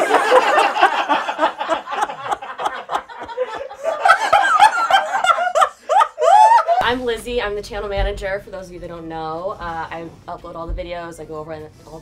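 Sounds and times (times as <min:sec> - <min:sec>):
group of people laughing: 0:00.0 - 0:06.9.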